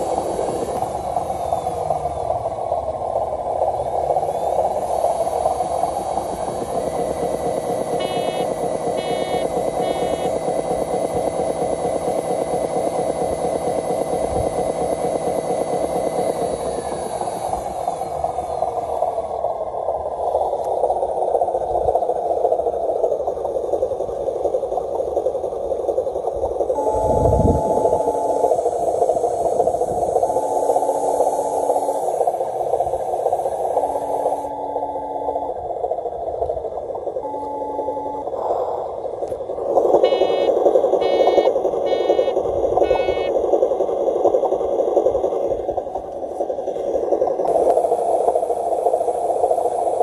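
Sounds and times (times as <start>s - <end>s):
thin motor whine: 0.0s - 20.9s, 26.7s - 43.4s
model truck engine drone: 0.0s - 50.0s.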